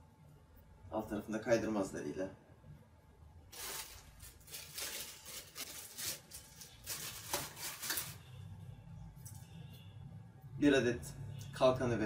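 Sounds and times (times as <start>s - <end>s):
plastic packaging crinkling: 3.5s - 8.3s.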